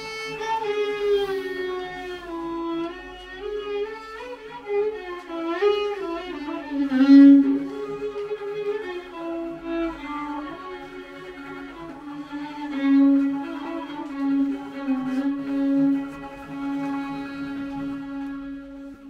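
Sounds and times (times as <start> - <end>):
solo violin improvisation: 0.0 - 19.0.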